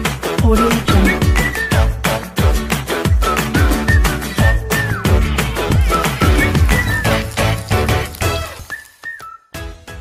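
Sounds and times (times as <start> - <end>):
upbeat electronic music: 0.0 - 8.7
whistle-like synth notes: 0.9 - 1.9, 3.1 - 7.3, 8.5 - 9.5.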